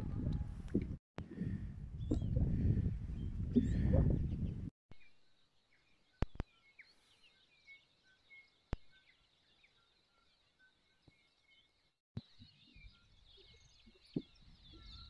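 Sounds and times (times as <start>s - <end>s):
wind buffeting microphone: 0.0s - 4.7s
faint bird chirps: 4.9s - 15.0s.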